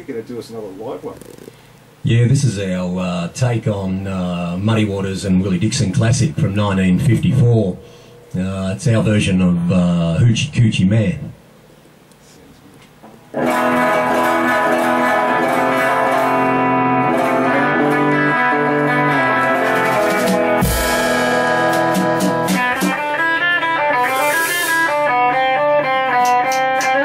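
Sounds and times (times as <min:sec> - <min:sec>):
electric guitar blues: 0:13.3 - 0:27.0.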